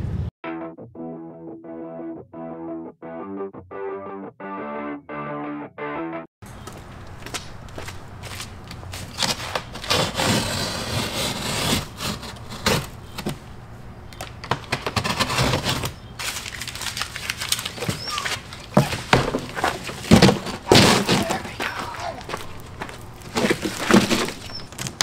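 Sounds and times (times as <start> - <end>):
cardboard ripping and scraping: 8.9 - 13.4, 14.6 - 25.0
cardboard box knocks and thuds: 18.7 - 21.4, 23.3 - 24.6.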